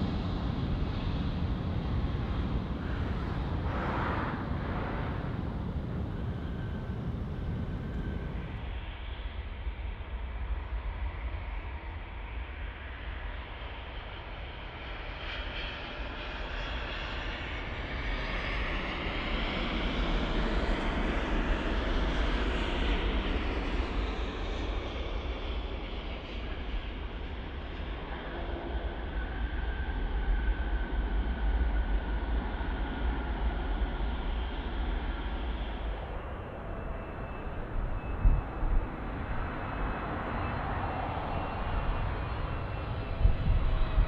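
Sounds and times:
low rumble: 0:00.0 - 0:08.6
jet engine rush: 0:00.0 - 0:08.8, 0:32.0 - 0:44.0.

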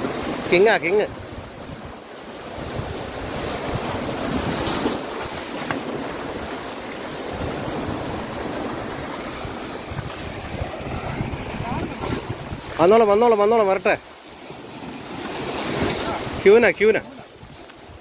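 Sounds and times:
waves breaking over rocks: 0:00.0 - 0:18.0
wind buffeting microphone: 0:01.1 - 0:13.4.

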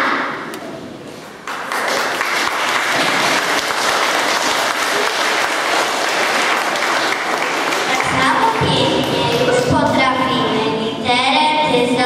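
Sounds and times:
audience applauding: 0:01.4 - 0:10.0.

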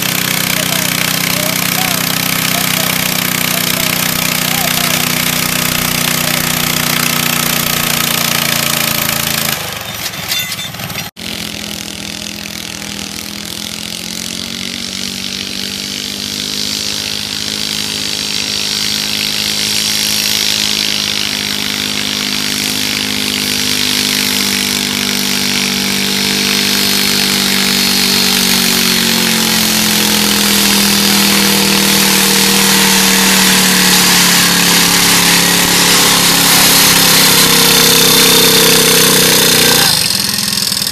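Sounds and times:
small tractor engine running: 0:00.0 - 0:40.9.

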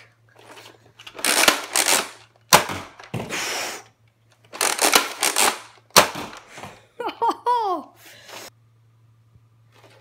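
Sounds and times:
plastic blaster priming clatter: 0:00.4 - 0:03.1, 0:04.4 - 0:06.5.

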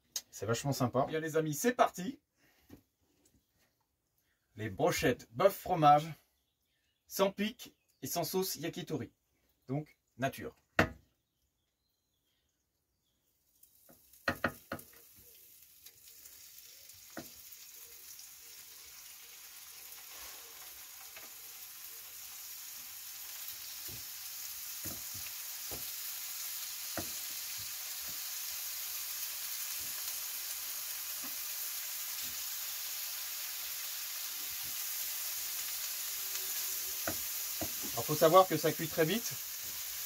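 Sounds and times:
meat sizzling in a frying pan: 0:13.5 - 0:40.0.

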